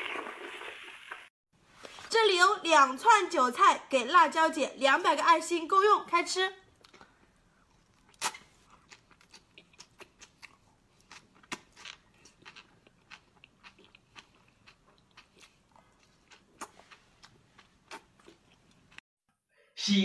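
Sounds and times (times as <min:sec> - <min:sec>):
person chewing crunchy vegetables: 0:06.8 - 0:19.0.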